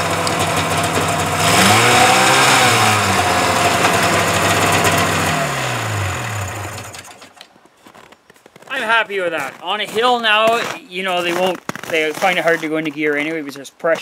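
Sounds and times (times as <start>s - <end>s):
snowmobile engine revving: 0.0s - 7.3s.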